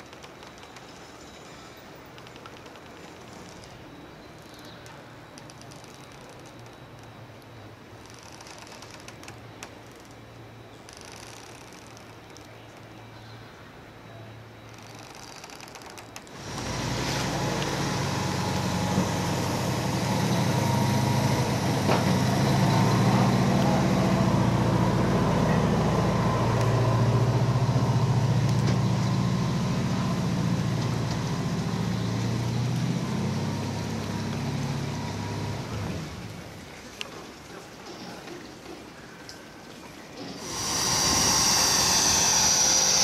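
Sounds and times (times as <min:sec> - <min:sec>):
engine running: 0:16.3 - 0:36.7, 0:40.2 - 0:43.0.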